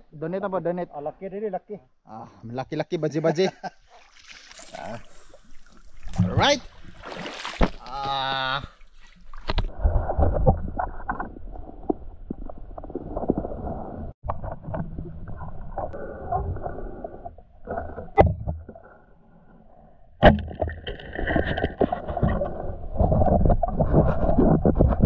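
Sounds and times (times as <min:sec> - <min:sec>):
river water rumbling and sloshing: 0:03.8 - 0:19.4.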